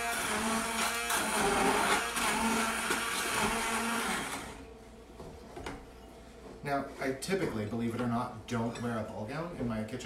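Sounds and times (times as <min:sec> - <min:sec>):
immersion blender pureeing liquid: 0:00.0 - 0:04.6.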